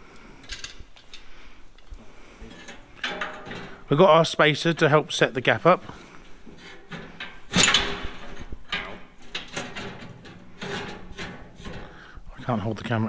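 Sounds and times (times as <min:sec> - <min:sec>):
metal knocks: 0:02.7 - 0:03.9, 0:06.6 - 0:12.0
steel bar scraping on metal: 0:06.5 - 0:12.1.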